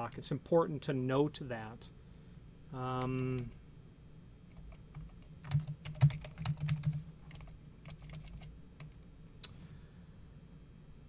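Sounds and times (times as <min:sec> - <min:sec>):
typing on computer keyboard: 0:03.0 - 0:03.6, 0:04.5 - 0:09.0.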